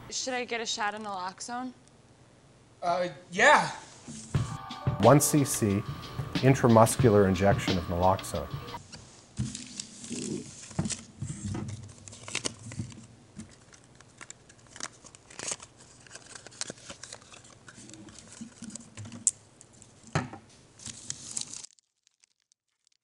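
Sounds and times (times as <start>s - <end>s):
packaging crinkling and tearing: 9.5s - 20.0s, 20.7s - 23.0s.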